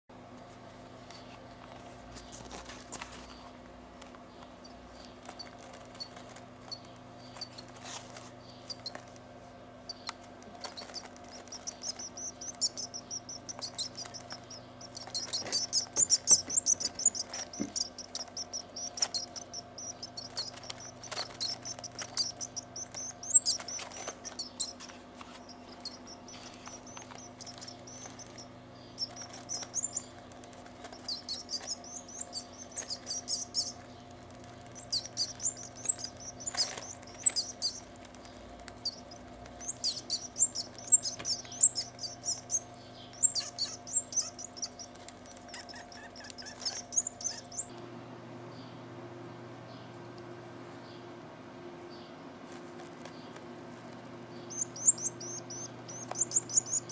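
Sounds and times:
bird chick begging cheeps: 9.9s - 24.8s, 38.8s - 47.7s.

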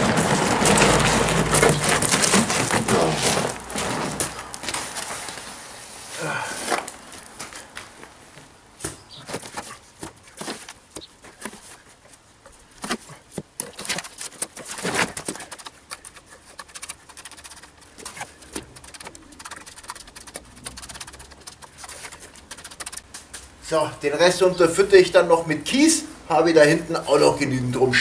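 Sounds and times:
trowel scraping mortar in a tub: 0.0s - 5.1s.

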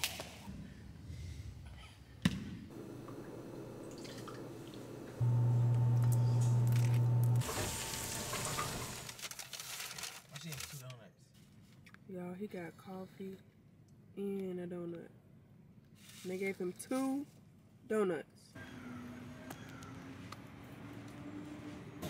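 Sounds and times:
blender humming: 2.7s - 9.1s.

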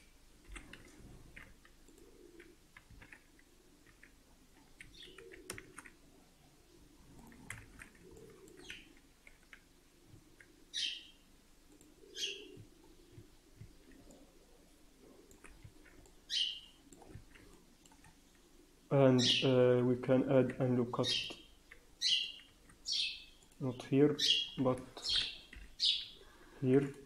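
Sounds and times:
small bird chirping: 4.8s - 5.6s, 8.1s - 9.0s, 10.7s - 11.2s, 12.0s - 13.2s, 16.2s - 16.8s, 21.0s - 23.6s, 24.2s - 26.2s.

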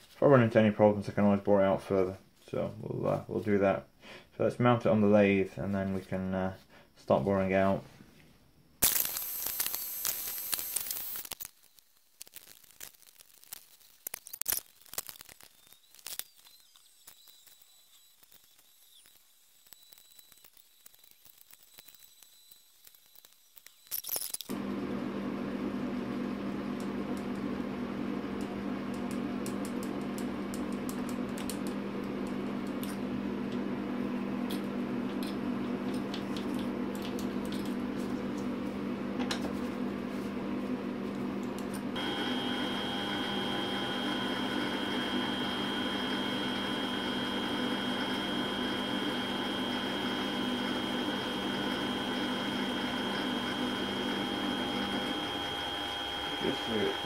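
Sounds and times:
boring tool whine: 8.8s - 11.8s, 14.5s - 24.6s, 42.0s - 57.0s
lathe motor hum: 42.0s - 57.0s.

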